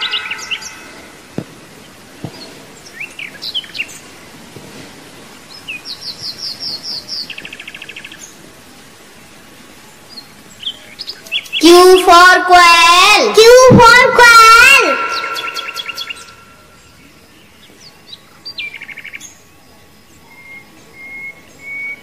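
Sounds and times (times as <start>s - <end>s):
buzzy bird trill: 0.0s - 1.3s, 11.4s - 16.8s
birds chirping: 0.0s - 8.4s, 9.9s - 22.0s
faint outdoor hiss: 0.0s - 22.0s.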